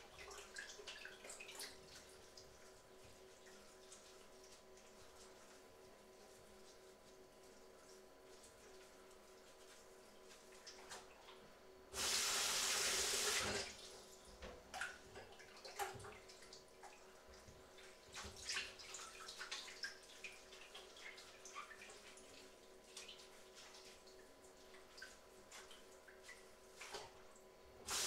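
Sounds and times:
tap water gushing: 0:12.0 - 0:17.6.

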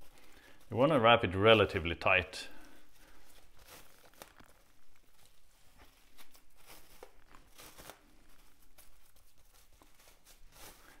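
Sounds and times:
cling wrap crinkling: 0:00.0 - 0:11.0.

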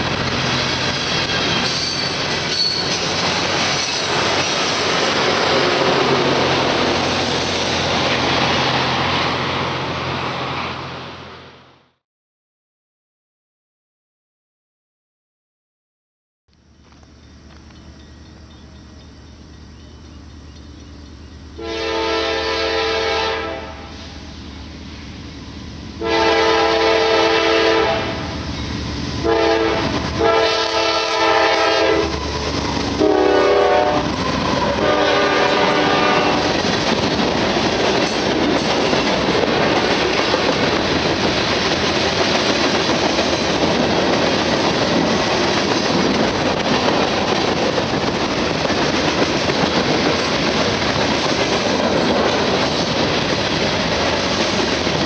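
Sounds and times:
freight train wheel clatter: 0:00.0 - 0:08.8, 0:32.1 - 0:55.0
locomotive air horn blasts: 0:21.6 - 0:24.1, 0:26.0 - 0:28.3, 0:29.2 - 0:32.2, 0:33.0 - 0:34.1, 0:34.7 - 0:36.5.

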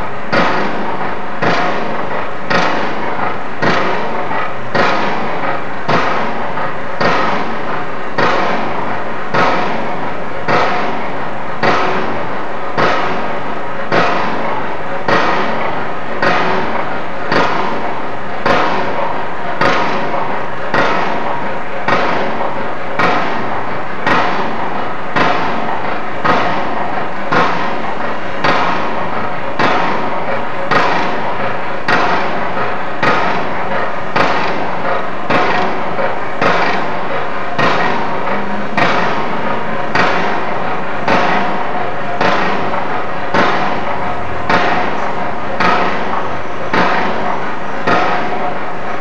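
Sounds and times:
dense steady din: 0:00.0 - 0:49.0
heavy ringing impacts: 0:00.0 - 0:49.0.

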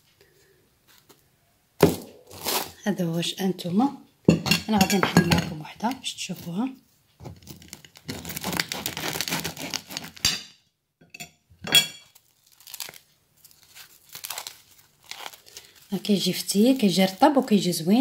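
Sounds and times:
bread pulled apart crackling: 0:02.3 - 0:02.8, 0:07.4 - 0:10.2, 0:12.1 - 0:16.9
knife sawing through bread crust: 0:08.1 - 0:10.2.

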